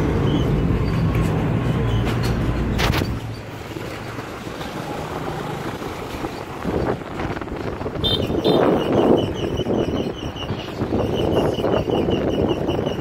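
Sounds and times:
road and wind noise: 0:00.0 - 0:13.0
wind buffeting microphone: 0:05.1 - 0:13.0.

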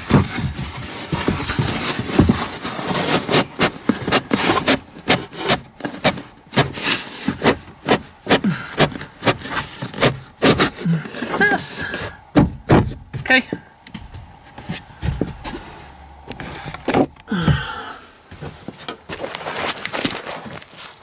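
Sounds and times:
styrofoam squeaking and rubbing: 0:00.0 - 0:12.3, 0:18.4 - 0:21.0.

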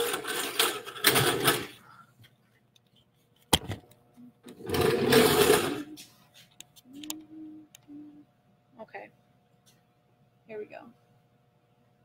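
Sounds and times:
pottery wheel motor hum: 0:04.1 - 0:09.1.

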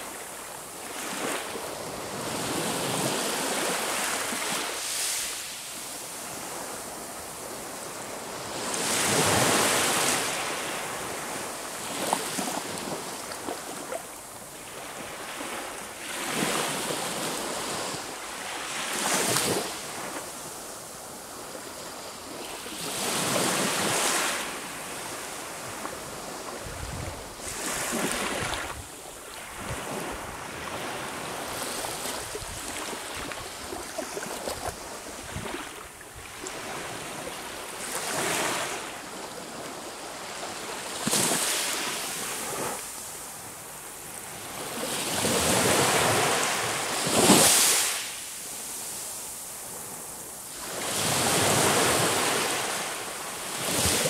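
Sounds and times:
sea waves breaking on shore: 0:21.3 - 0:54.0.

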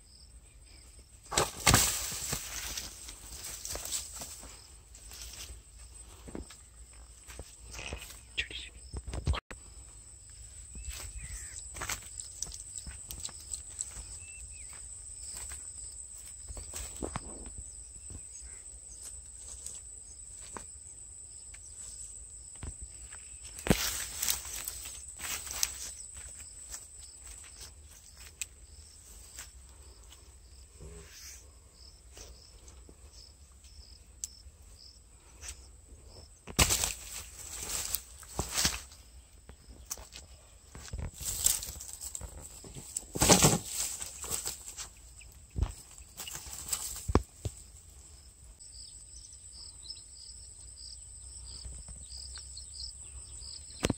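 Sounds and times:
insect drone: 0:00.0 - 0:53.9
footsteps in dry grass: 0:01.2 - 0:08.3, 0:09.0 - 0:20.8, 0:21.7 - 0:31.2, 0:36.4 - 0:48.3
short chirping calls: 0:07.7 - 0:09.1, 0:10.8 - 0:11.7.

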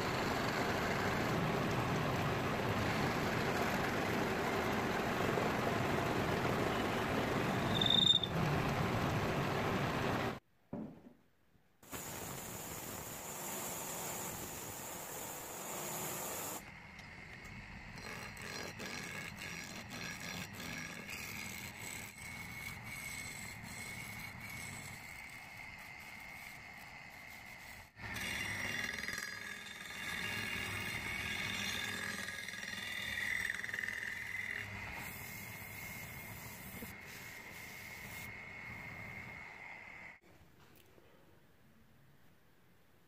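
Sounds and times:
chisel cutting spinning wood: 0:00.0 - 0:10.4, 0:17.2 - 0:39.1
wood lathe whine: 0:00.0 - 0:10.4, 0:16.6 - 0:40.2.

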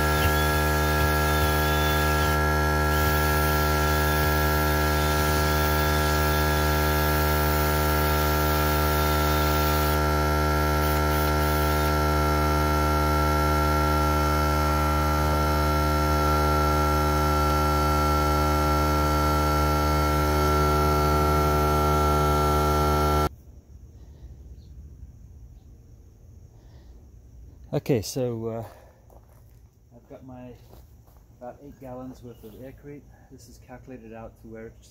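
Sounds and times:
air compressor motor humming: 0:00.0 - 0:23.3.

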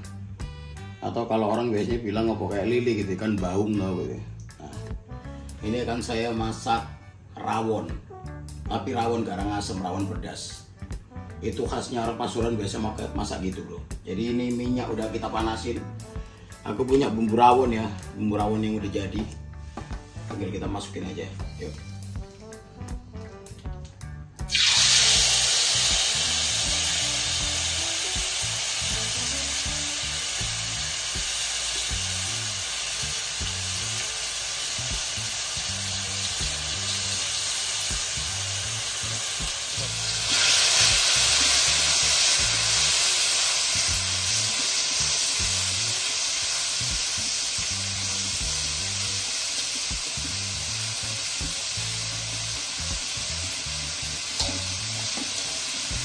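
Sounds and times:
spice paste sizzling in hot oil: 0:24.4 - 0:56.0.

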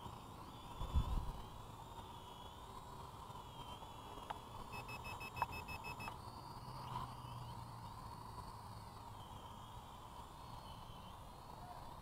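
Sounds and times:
drone propellers humming: 0:00.0 - 0:12.0
small clicks: 0:04.2 - 0:06.2
short electronic beeps: 0:04.7 - 0:06.2.

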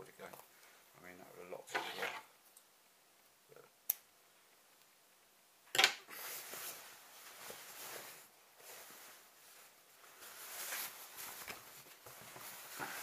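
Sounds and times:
fabric rustling on microphone: 0:06.1 - 0:13.0.

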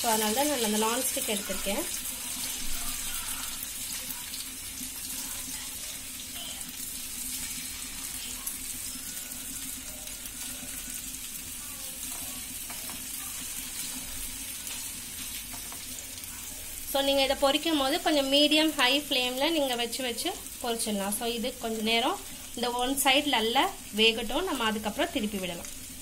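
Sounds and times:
fish sizzling in oil: 0:00.0 - 0:26.0.

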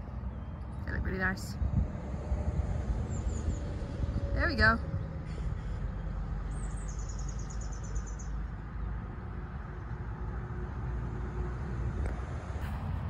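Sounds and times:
steady low rumble: 0:00.0 - 0:06.3, 0:11.6 - 0:13.0.

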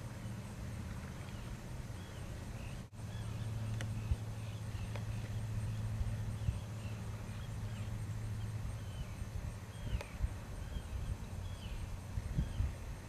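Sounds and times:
steady low hum: 0:00.0 - 0:13.0
faint bird chirps: 0:01.0 - 0:12.8.

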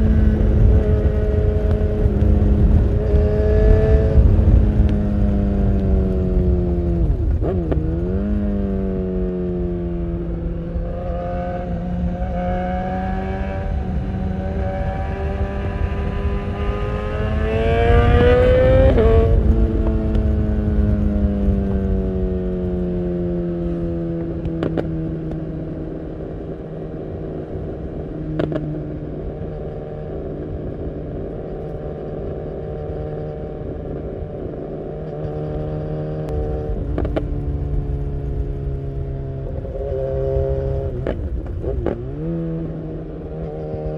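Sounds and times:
wind rush: 0:00.0 - 0:31.5
motorcycle engine revving: 0:00.0 - 0:43.9.

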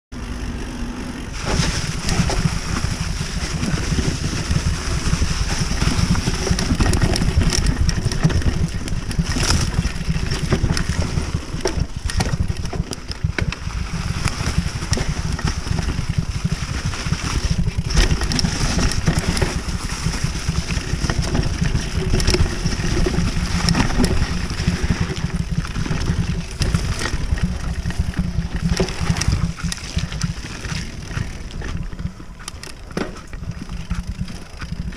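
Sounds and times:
bike rattling and knocking: 0:00.2 - 0:34.9
bike tyres rolling over dirt: 0:00.2 - 0:34.9
wind rumble on microphone: 0:01.2 - 0:34.9.

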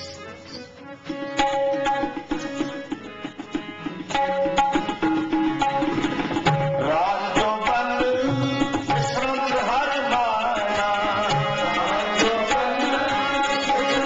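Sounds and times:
harmoniums holding chords: 0:00.0 - 0:14.0
tabla rhythm: 0:00.0 - 0:14.0
voices singing: 0:06.8 - 0:14.0.

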